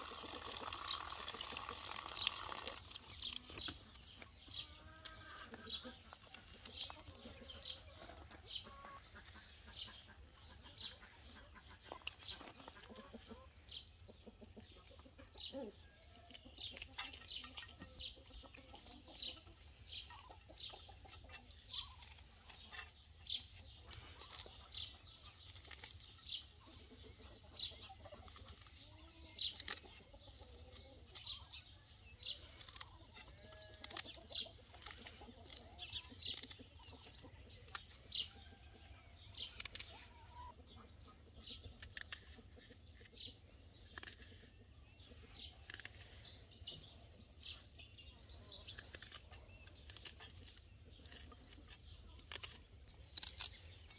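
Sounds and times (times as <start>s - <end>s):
hens clucking: 0.0s - 25.7s, 26.5s - 31.4s, 32.5s - 52.4s.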